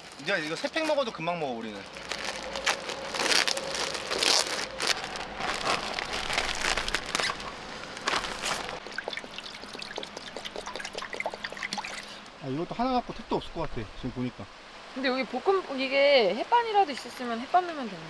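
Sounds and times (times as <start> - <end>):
plastic food bag crinkling: 1.6 - 9.1
water pouring into pot: 8.8 - 12.2.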